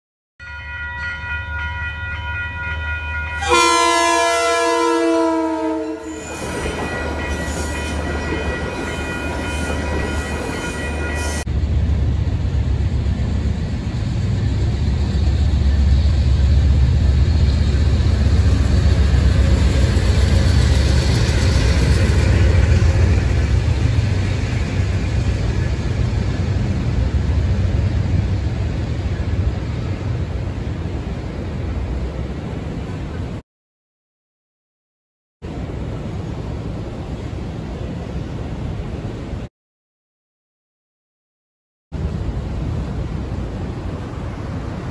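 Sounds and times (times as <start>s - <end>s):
train rolling across steel overpass: 0.4s - 33.4s, 35.4s - 39.5s, 42.0s - 44.9s
locomotive air horn: 3.4s - 6.6s.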